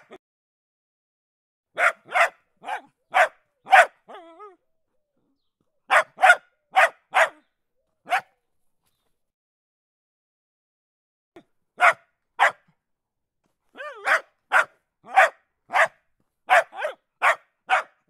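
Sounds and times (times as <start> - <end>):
dog barking: 1.7 - 4.5, 5.9 - 8.4, 11.8 - 12.7, 13.8 - 18.0
dog whining: 4.0 - 4.6.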